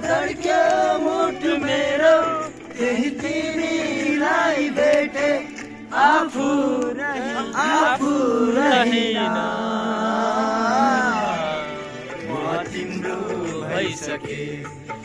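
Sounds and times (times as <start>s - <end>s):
men singing in chorus: 0.0s - 15.0s.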